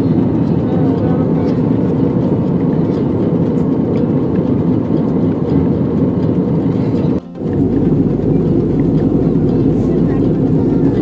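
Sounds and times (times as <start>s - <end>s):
airliner cabin engine rush: 0.0s - 11.0s.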